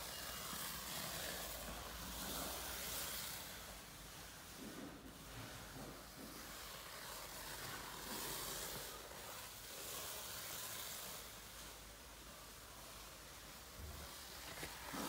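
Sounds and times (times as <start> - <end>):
stretch film pulling off roll: 0.0 - 15.0.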